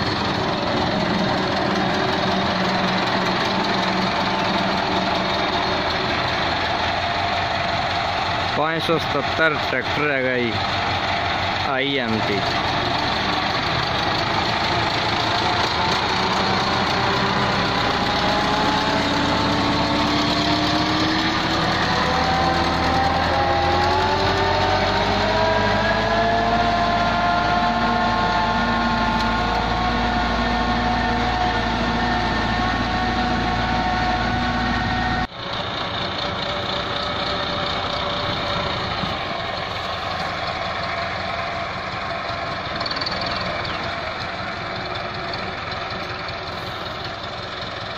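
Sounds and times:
tractor diesel engine under load: 0:00.0 - 0:47.9.

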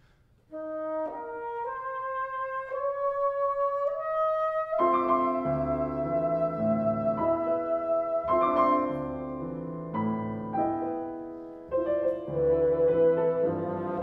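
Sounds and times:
bassoon long notes: 0:00.5 - 0:14.0
piano chords: 0:00.5 - 0:14.0.

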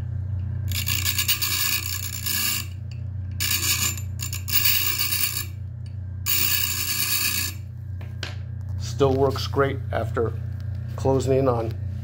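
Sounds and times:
grinder motor hum: 0:00.0 - 0:08.2
bench grinder grinding bolt: 0:00.7 - 0:02.8, 0:03.4 - 0:05.5.

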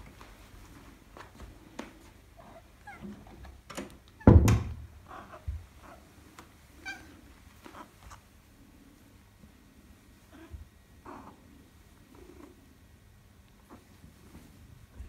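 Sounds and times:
cat meowing: 0:06.8 - 0:07.2.

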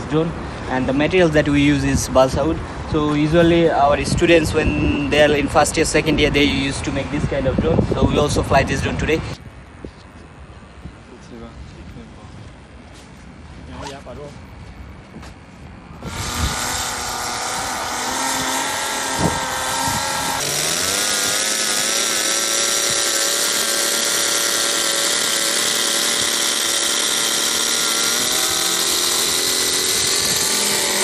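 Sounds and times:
model airplane engine running: 0:16.0 - 0:31.0.

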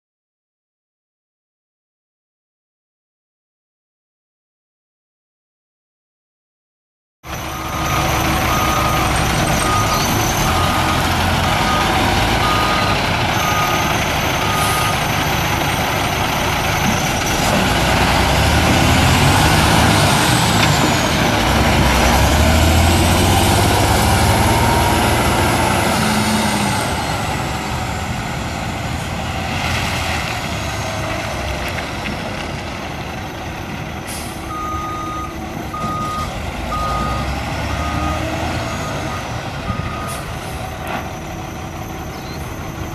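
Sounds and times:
diesel truck engine running: 0:07.3 - 0:42.9
backup alarm beeping: 0:34.5 - 0:39.2.

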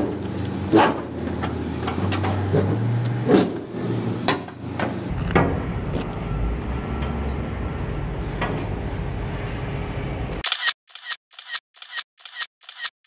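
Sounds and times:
camera shutter clicks: 0:10.4 - 0:12.9.

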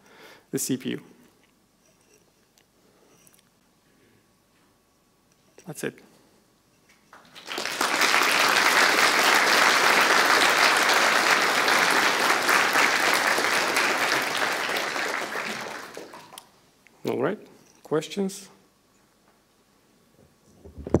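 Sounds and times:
audience applauding: 0:07.2 - 0:16.4.

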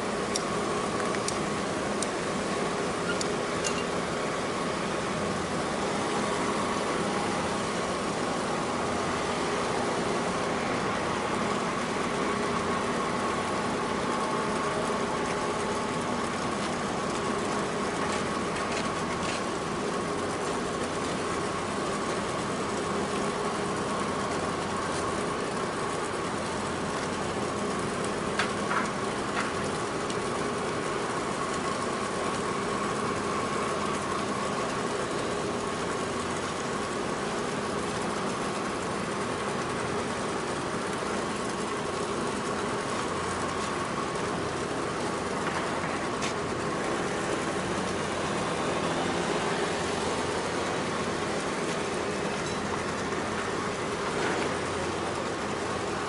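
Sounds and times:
ship engines droning: 0:00.0 - 0:56.0
high-pitched whine: 0:02.8 - 0:09.9.

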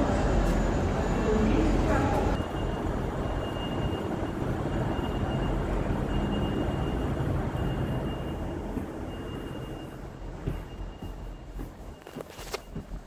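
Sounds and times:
electric train humming: 0:00.0 - 0:12.2
faint high beep: 0:02.3 - 0:12.8.

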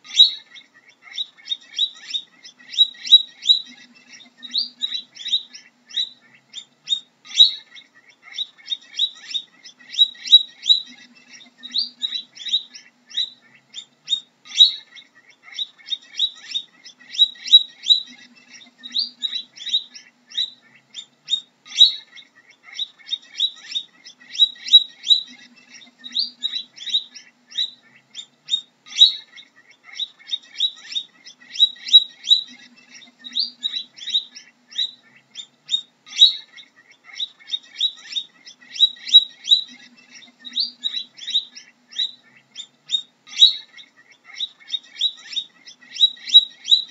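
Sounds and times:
guinea pig squeaking: 0:00.0 - 0:46.9.

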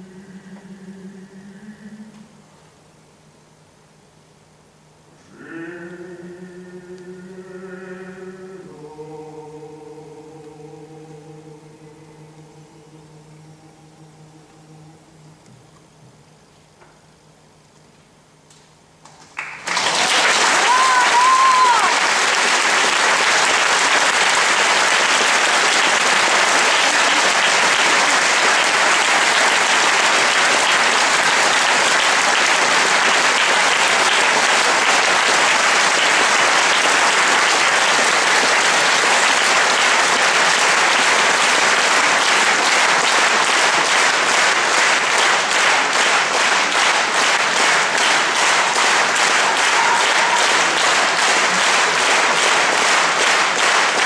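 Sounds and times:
rhythmic clapping in unison: 0:18.5 - 0:54.0
large audience applauding: 0:19.1 - 0:54.0.

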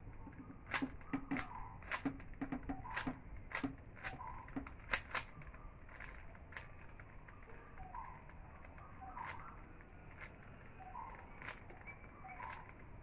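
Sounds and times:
puzzle cube clicking: 0:00.2 - 0:07.1.

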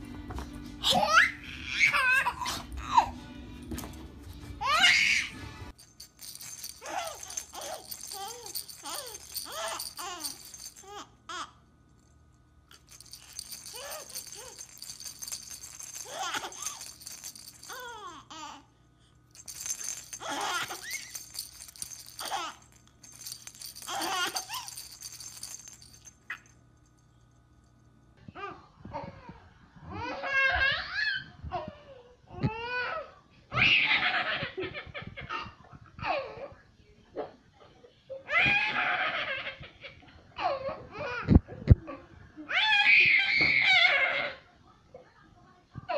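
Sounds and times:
baby rattle shaking: 0:05.7 - 0:11.0, 0:12.7 - 0:18.3, 0:19.3 - 0:26.5.

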